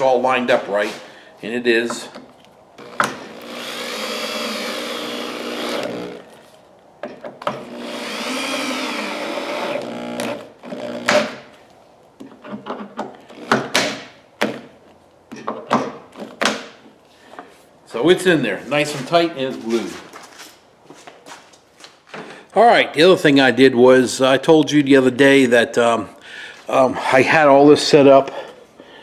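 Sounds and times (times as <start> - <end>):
sharp clicks and knocks: 1.9 - 3.6, 7.0 - 7.8, 9.7 - 11.5, 12.2 - 16.9
electric drill driving screws: 2.8 - 6.5, 7.5 - 11.5, 13.3 - 13.8.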